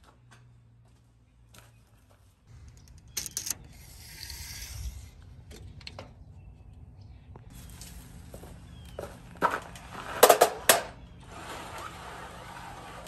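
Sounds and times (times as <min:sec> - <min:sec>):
tape measure metallic clicks: 0:02.6 - 0:04.9
tape measure blade sliding out: 0:03.2 - 0:05.1.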